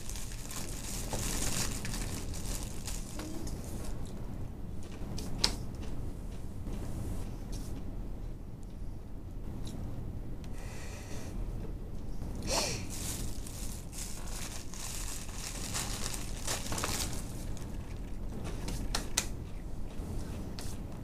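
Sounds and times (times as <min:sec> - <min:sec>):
rustling and crinkling: 0:00.0 - 0:04.2, 0:12.2 - 0:21.0
steady low hum: 0:00.0 - 0:21.0.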